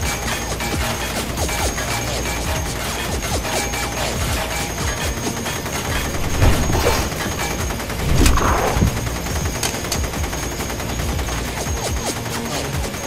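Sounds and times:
rapid automatic gunfire: 5.2s - 11.1s.

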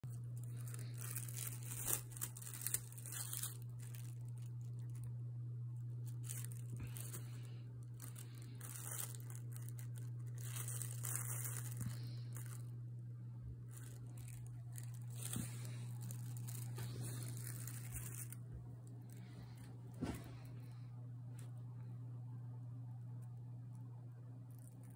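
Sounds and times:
steady low hum: 0.0s - 24.9s
paper crinkling and tearing: 0.1s - 5.1s, 5.9s - 12.7s, 13.7s - 20.2s
sharp paper crackles: 0.1s - 5.1s, 6.0s - 12.7s, 13.7s - 20.2s.

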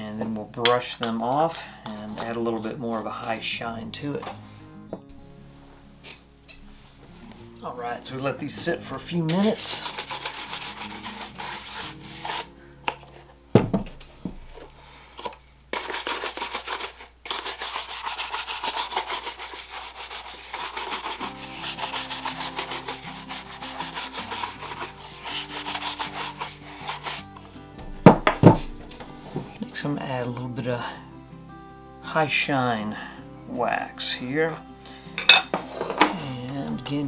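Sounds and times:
shoe brush rubbing leather: 9.4s - 12.5s, 15.8s - 27.4s.

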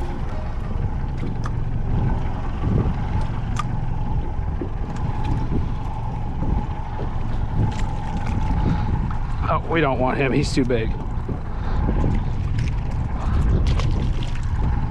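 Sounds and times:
steady tone: 0.0s - 7.8s
water moving around boat hull: 0.0s - 14.9s
wind rumbling on microphone: 0.0s - 14.9s.

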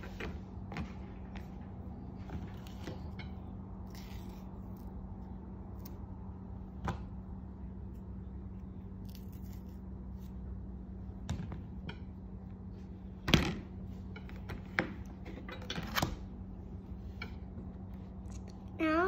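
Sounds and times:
steady low hum: 0.0s - 19.0s
banana being peeled: 3.7s - 10.9s.

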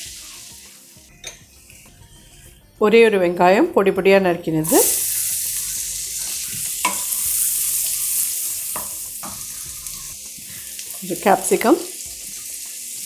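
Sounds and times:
onion sizzling in a pan: 0.0s - 1.9s, 4.6s - 13.0s.

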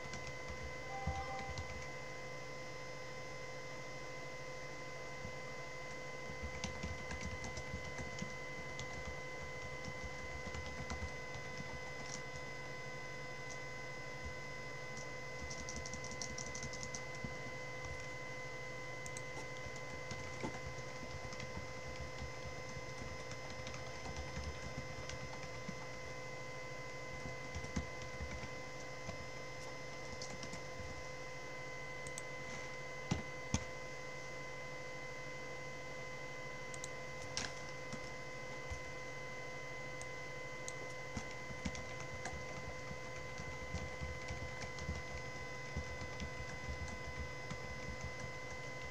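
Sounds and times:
computer keyboard typing: 0.0s - 2.0s, 5.9s - 12.7s, 14.2s - 18.2s, 19.0s - 31.0s, 36.7s - 38.9s, 39.9s - 48.9s
faint electrical whine: 0.0s - 48.9s.

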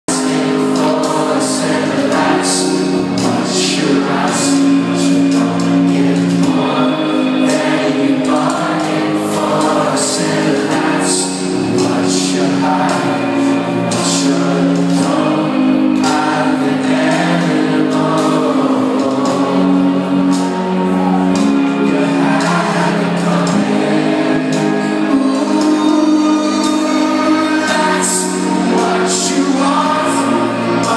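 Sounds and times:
person singing: 0.1s - 30.9s
rock band playing: 0.1s - 30.9s
sustained keyboard chords: 0.1s - 30.9s.

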